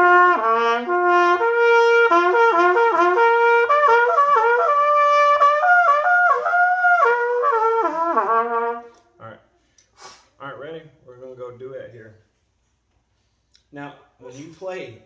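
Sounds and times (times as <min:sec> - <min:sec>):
trumpet playing quick runs: 0:00.0 - 0:09.0.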